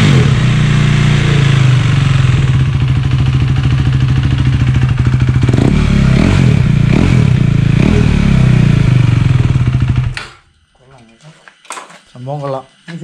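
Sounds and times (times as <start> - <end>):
motorcycle engine idling and revving: 0.0 - 10.2.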